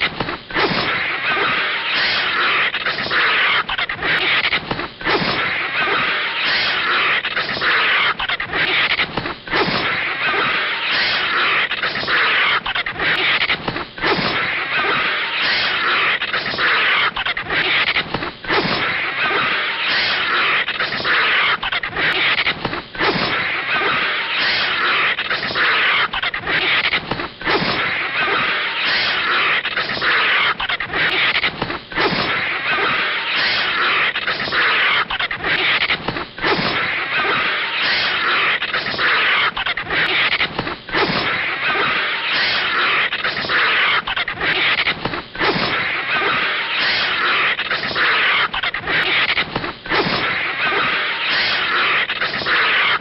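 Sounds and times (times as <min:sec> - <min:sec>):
cartoon snake hiss: 0:14.0 - 0:22.4.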